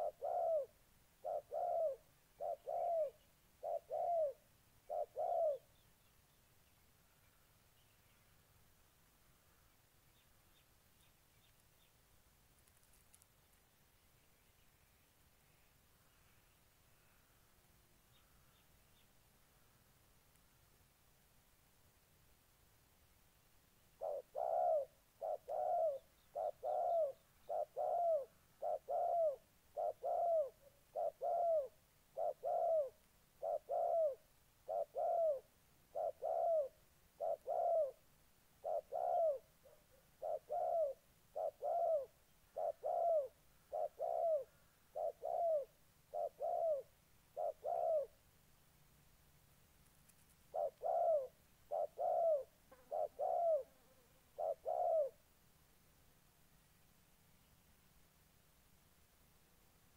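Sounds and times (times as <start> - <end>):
doves cooing: 0.0 - 5.7, 24.0 - 38.0, 38.6 - 48.2, 50.5 - 55.2.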